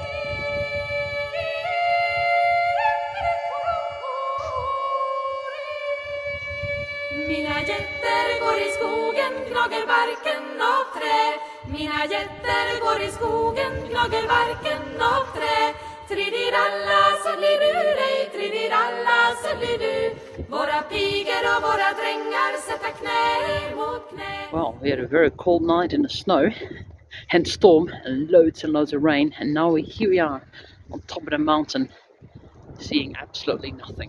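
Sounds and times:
choir singing: 0.0 - 24.8.

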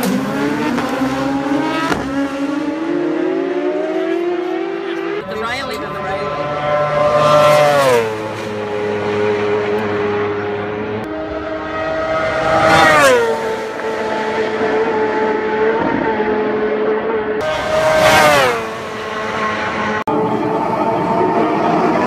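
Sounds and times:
racing motorcycles passing: 0.0 - 22.0.

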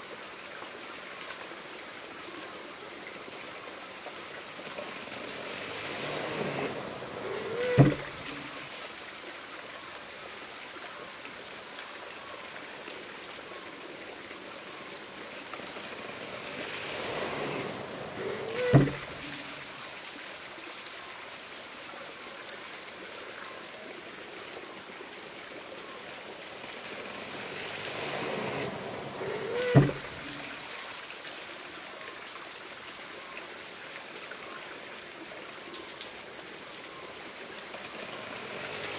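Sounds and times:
rush of spilling water: 0.0 - 38.9
water running into trough: 4.0 - 9.0, 14.9 - 20.0, 26.5 - 30.8, 37.6 - 38.9
wooden creak: 5.5 - 8.6, 16.0 - 19.6, 27.0 - 30.6
wooden hammer thud: 7.7 - 8.1, 18.7 - 19.1.

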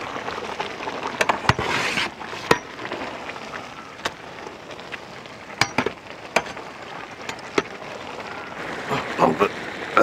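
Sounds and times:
steaming pot hiss: 0.0 - 10.0
metal ladle knocking against pot: 5.6 - 6.6.

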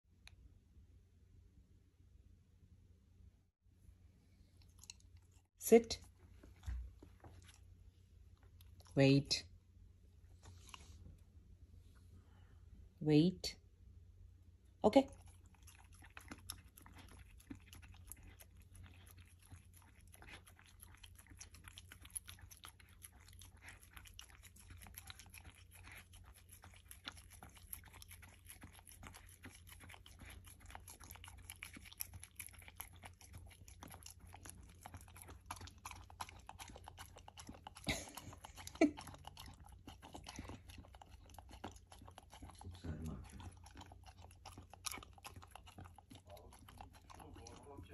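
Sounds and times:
puppy licking and lapping: 6.2 - 9.4, 15.0 - 47.9.

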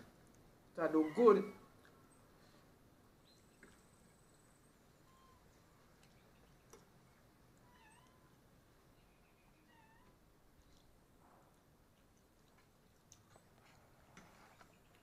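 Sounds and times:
faint animal calls: 0.8 - 2.3, 3.2 - 6.6, 7.6 - 8.4, 9.0 - 10.2.

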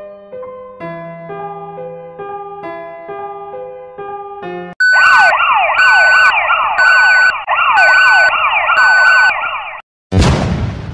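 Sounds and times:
high pulsing beep: 4.8 - 9.6
electronic siren sweeps: 4.8 - 9.8.

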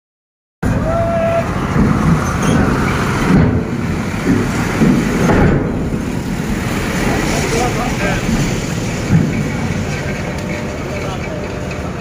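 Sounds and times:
bus engine rumbling: 0.6 - 12.0
people's voices: 6.8 - 12.0.

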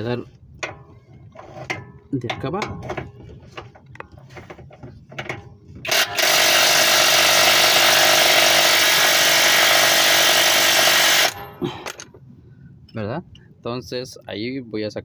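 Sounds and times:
impact wrench running: 5.8 - 11.7.

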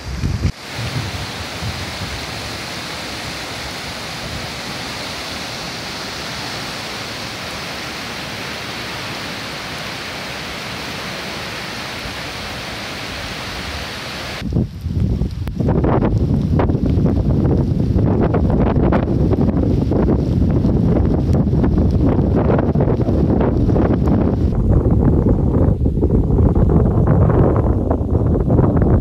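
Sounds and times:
river water rushing over rocks: 0.0 - 14.4
gusty wind buffeting microphone: 0.0 - 29.0.

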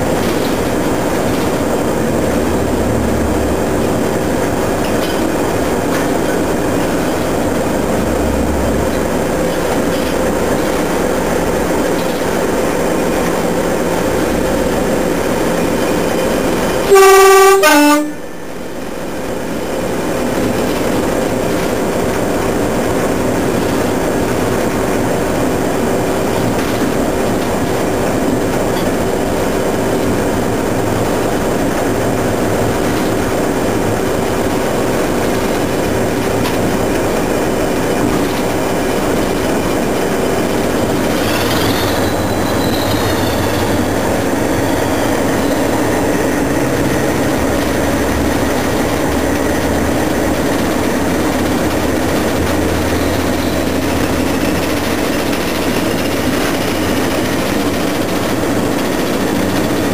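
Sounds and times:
locomotive engine and wheel noise: 0.0 - 59.9
locomotive horn: 16.7 - 18.4
faint high squeal: 41.2 - 45.8.

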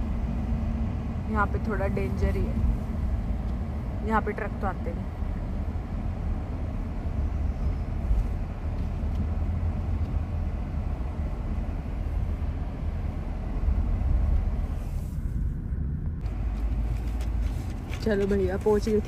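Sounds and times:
car cabin road and engine rumble: 0.0 - 19.0.

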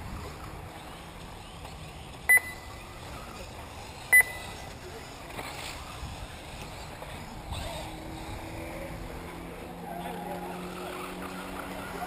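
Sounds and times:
short electronic beeps: 2.3 - 2.9, 4.1 - 4.7.

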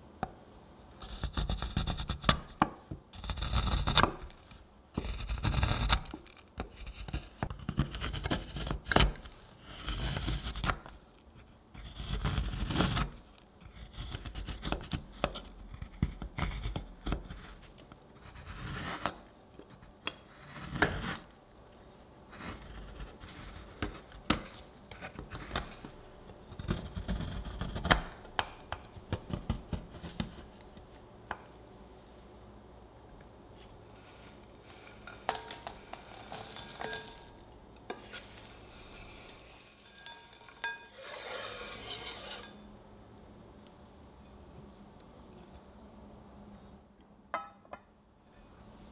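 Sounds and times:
scraping on cutting board: 37.9 - 42.7
chocolate sliding into glass bowl: 38.0 - 42.7.

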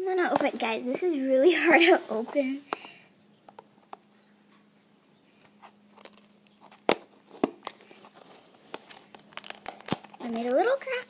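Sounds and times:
plastic wrapper crinkling: 5.4 - 11.0.

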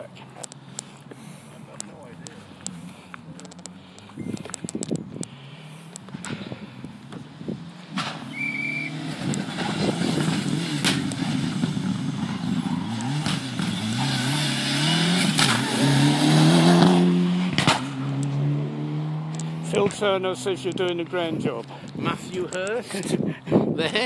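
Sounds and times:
rally car engine passing by: 7.6 - 21.8
sharp cracks: 7.9 - 14.0, 15.2 - 15.8, 17.5 - 18.3.

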